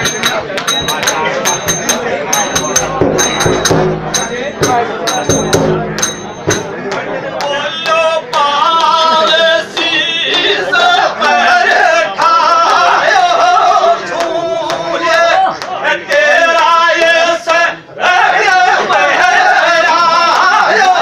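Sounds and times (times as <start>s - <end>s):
sharp strikes: 0.0s - 7.0s
man singing loudly: 7.4s - 21.0s.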